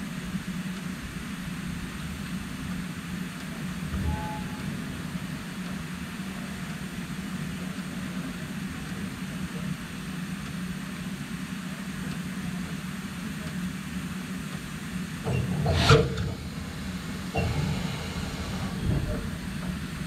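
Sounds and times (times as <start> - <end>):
steam locomotive rumble: 0.0 - 20.0
locomotive clatter: 15.1 - 20.0
steam hiss: 15.2 - 20.0.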